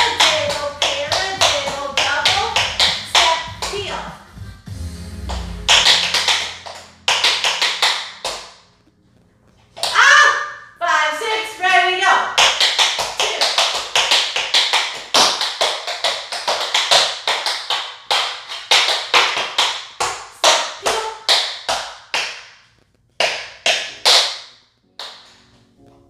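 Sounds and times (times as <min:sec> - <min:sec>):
tap shoes on wooden floor: 0:00.0 - 0:04.1, 0:12.4 - 0:22.4.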